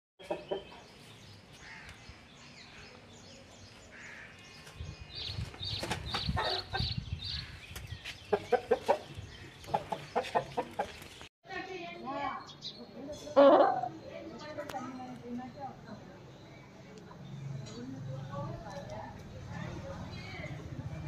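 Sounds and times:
chicken clucking: 0.2s - 0.8s, 8.3s - 11.0s.

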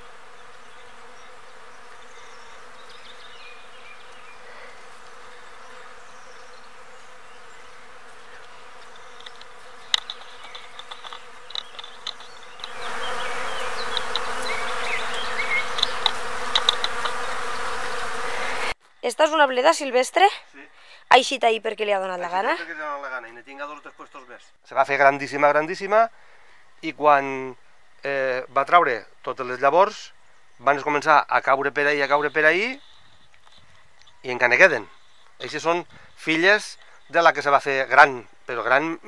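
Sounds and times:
bees buzzing: 0.0s - 24.4s.

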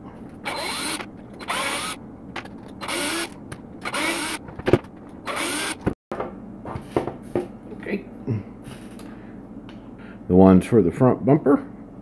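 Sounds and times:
cordless drill-driver bursts: 0.4s - 2.0s, 2.8s - 4.4s, 5.3s - 5.8s.

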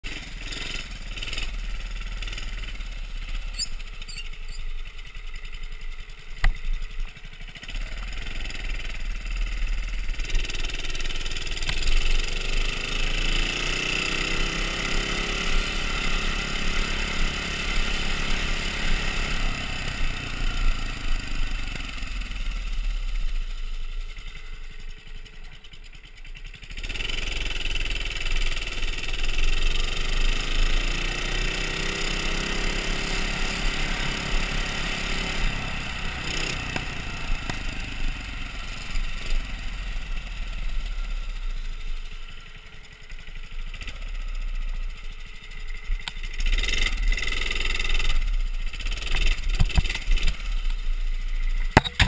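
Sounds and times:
minibike engine running: 0.1s - 52.0s
sharp click: 51.6s - 52.0s.

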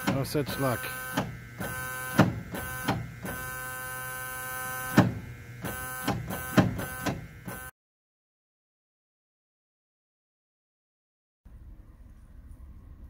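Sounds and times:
electric buzz: 0.0s - 7.7s.

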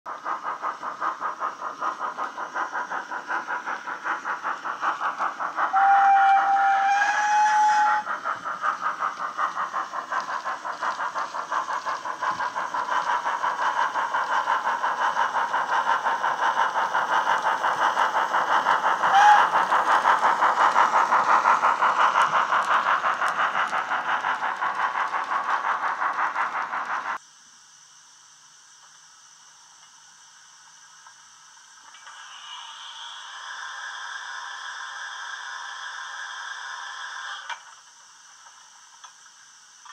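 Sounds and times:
steam locomotive exhaust chuffs: 0.1s - 27.2s, 28.2s - 39.9s
locomotive whistle: 5.7s - 8.1s, 19.0s - 19.8s.

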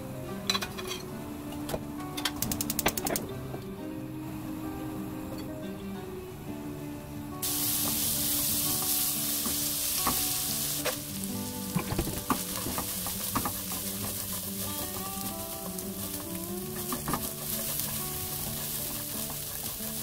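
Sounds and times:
garlic sizzling in hot oil: 7.4s - 20.0s.

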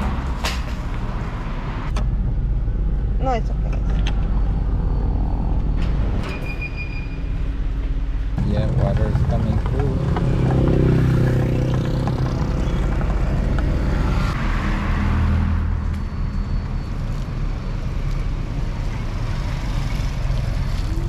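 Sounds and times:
traffic engine rumble: 0.0s - 21.0s
vehicle passing: 8.4s - 15.9s.

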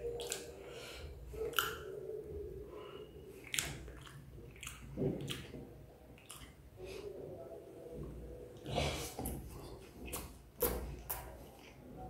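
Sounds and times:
person chewing noodles: 0.0s - 1.9s, 3.3s - 6.6s
wet mouth clicks and smacks: 0.2s - 0.5s, 1.4s - 1.9s, 3.4s - 5.6s, 6.2s - 6.6s, 10.0s - 11.8s.

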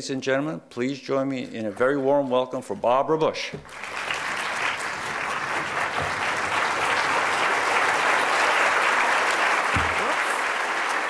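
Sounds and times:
large audience applauding: 3.6s - 11.0s.

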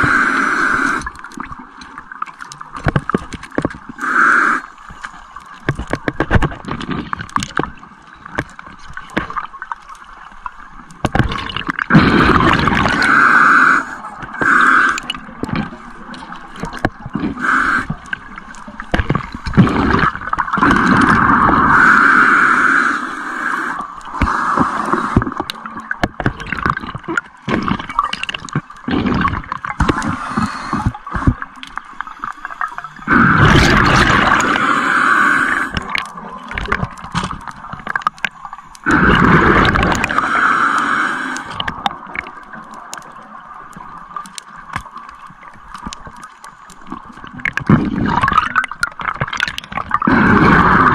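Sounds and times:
underwater bubbles gurgling: 0.0s - 50.9s
loud bursts of bubbles: 11.2s - 15.1s, 19.2s - 22.9s, 33.0s - 38.1s, 38.8s - 41.7s, 47.6s - 50.9s.

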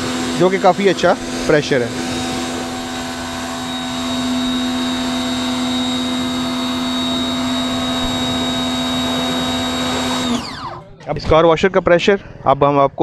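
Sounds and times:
water jet hissing: 0.0s - 10.4s
pressure washer motor humming: 0.0s - 10.9s.

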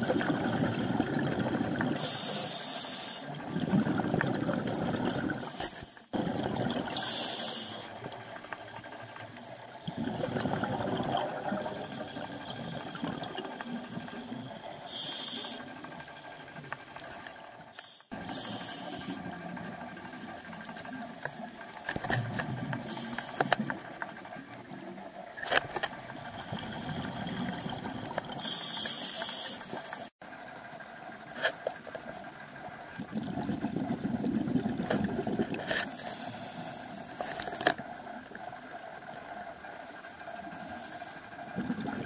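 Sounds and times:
exhaled bubbles bursting: 0.0s - 2.1s, 3.4s - 5.5s, 6.1s - 7.1s, 9.8s - 14.6s, 26.2s - 28.5s, 33.0s - 35.7s, 41.6s - 42.0s
regulator breathing hiss: 2.0s - 3.3s, 6.9s - 8.1s, 14.8s - 15.8s, 17.7s - 19.3s, 22.8s - 23.7s, 28.4s - 30.1s, 35.8s - 37.7s, 40.4s - 41.4s.

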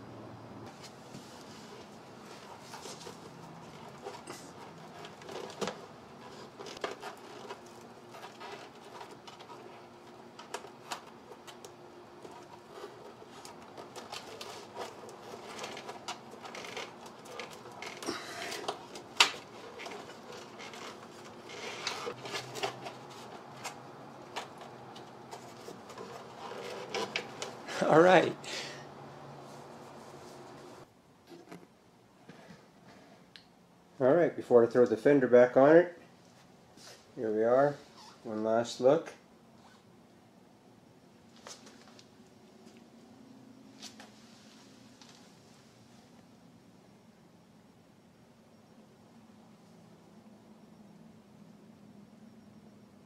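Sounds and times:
faint steady hum: 0.0s - 53.0s
wiring harness clicks and rustles: 2.4s - 28.1s.

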